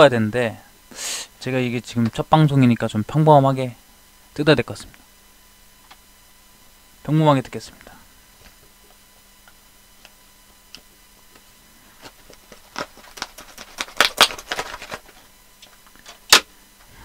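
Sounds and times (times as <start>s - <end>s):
packaging snapping: 12.0s - 15.2s.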